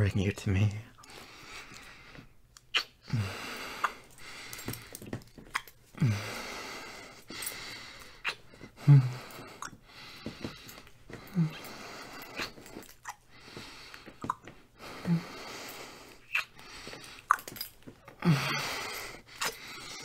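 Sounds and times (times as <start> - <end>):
man breathing out: 3.0 - 5.0, 6.0 - 14.2, 14.8 - 20.0.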